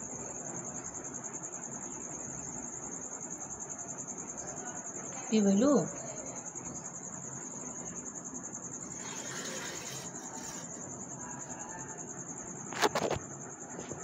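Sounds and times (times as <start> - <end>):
high-pitched insect trill: 0.0 - 14.0
brief rustle: 12.7 - 13.2.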